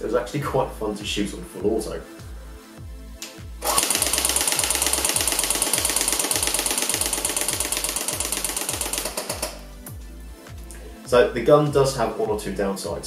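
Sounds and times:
airsoft gun full-auto burst: 3.6s - 9.6s.

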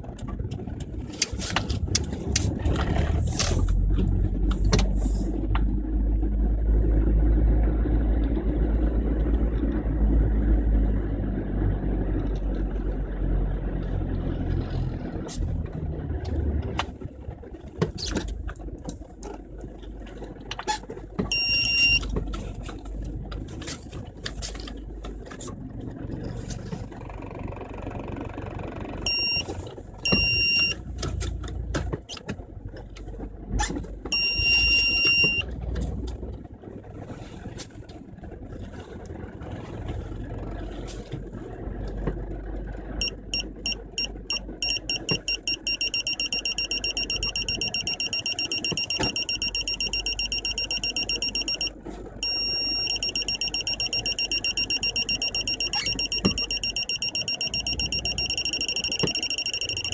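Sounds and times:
engine and road rumble: 0.0s - 59.9s
car warning beeper: 21.3s - 22.1s, 29.1s - 30.8s, 34.1s - 35.5s, 43.0s - 59.9s.

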